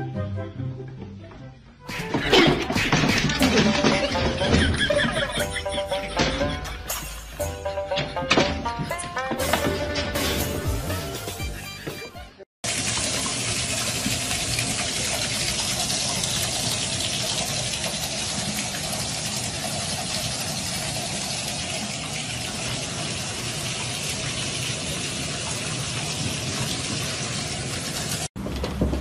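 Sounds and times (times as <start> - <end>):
water splashing from faucet: 12.6 - 28.3.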